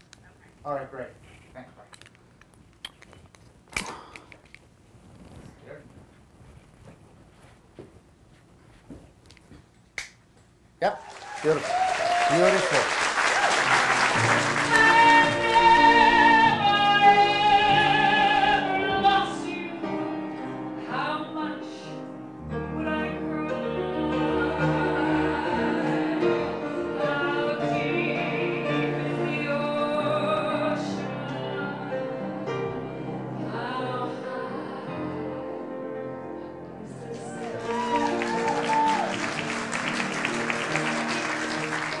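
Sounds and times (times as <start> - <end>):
grand piano accompaniment: 12.4 - 42.0
woman singing into a microphone: 14.6 - 20.2, 20.8 - 32.6, 33.4 - 35.8.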